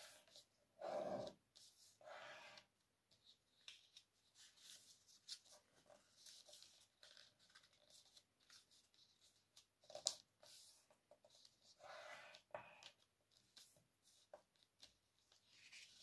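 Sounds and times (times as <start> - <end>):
paper rustling and crinkling: 3.1 - 11.7, 12.3 - 16.0.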